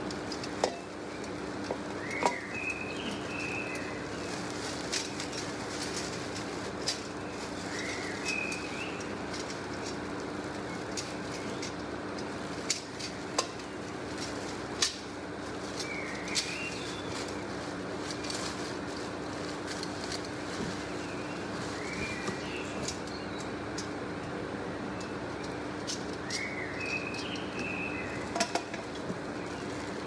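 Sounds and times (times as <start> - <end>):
plastic-wrapped parts clicking and knocking: 0.0 - 24.0, 25.0 - 30.0
bird chirping: 2.0 - 4.3, 7.2 - 9.2, 20.9 - 23.5, 26.2 - 28.3.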